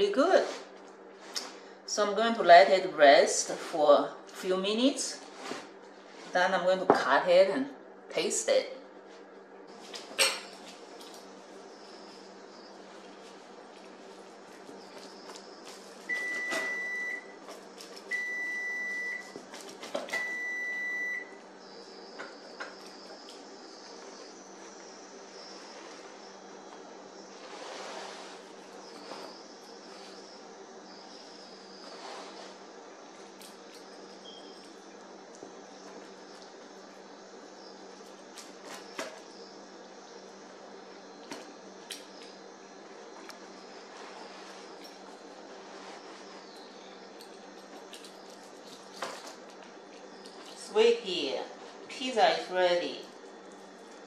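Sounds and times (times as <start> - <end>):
steady low hum: 0.0 - 54.0
pizza wheel crunching crust: 10.6 - 20.4, 40.6 - 50.7.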